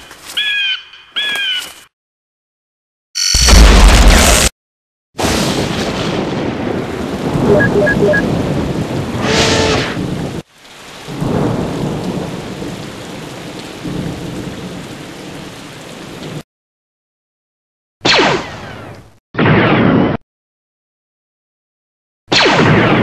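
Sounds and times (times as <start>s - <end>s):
short beeps: 7.5s - 8.2s.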